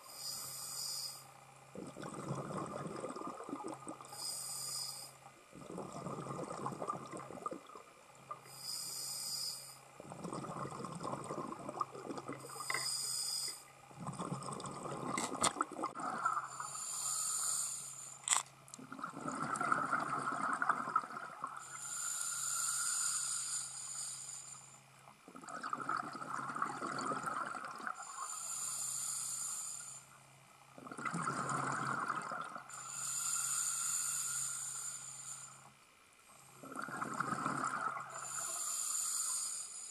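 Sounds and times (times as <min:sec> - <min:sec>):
regulator inhale hiss: 0:00.0 - 0:01.4, 0:04.1 - 0:05.3, 0:08.4 - 0:09.9, 0:12.5 - 0:13.7, 0:16.5 - 0:18.4, 0:21.6 - 0:24.9, 0:28.0 - 0:30.2, 0:32.7 - 0:35.8, 0:38.1 - 0:39.9
exhaled bubbles rumbling: 0:01.7 - 0:04.1, 0:05.5 - 0:08.5, 0:10.0 - 0:12.7, 0:13.9 - 0:16.6, 0:18.8 - 0:21.6, 0:25.3 - 0:28.0, 0:30.8 - 0:32.7, 0:36.6 - 0:38.2.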